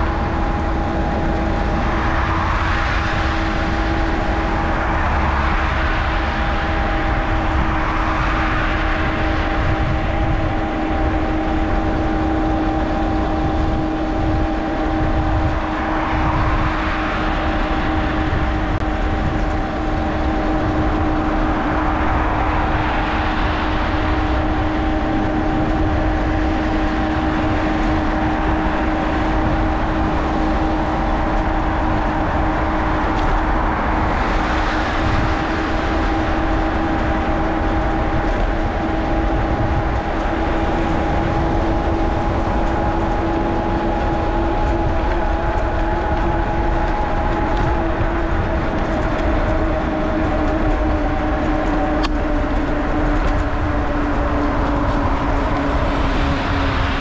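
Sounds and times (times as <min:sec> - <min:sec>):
passing traffic: 0:00.0 - 0:57.0
steady hum: 0:00.0 - 0:57.0
wind rumbling on microphone: 0:00.0 - 0:57.0.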